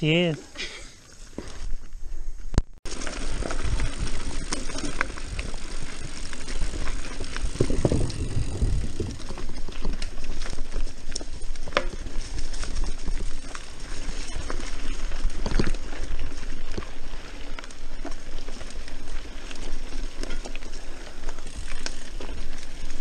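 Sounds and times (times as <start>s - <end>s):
bike tyres rumbling on dirt: 0.9s - 23.0s
bike knocks and rattles: 2.9s - 16.9s.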